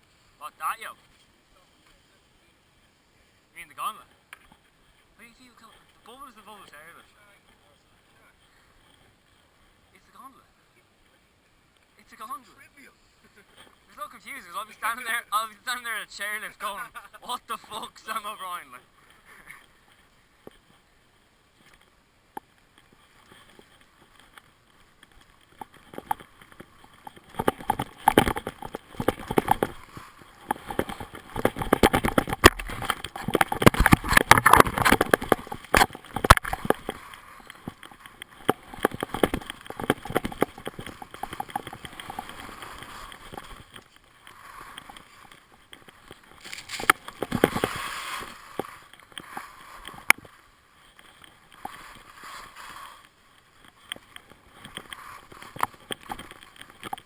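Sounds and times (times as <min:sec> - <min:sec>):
skis scraping on snow: 0:22.6 - 0:57.0
sharp clicks and knocks: 0:25.0 - 0:44.0, 0:44.7 - 0:47.8, 0:53.6 - 0:57.0.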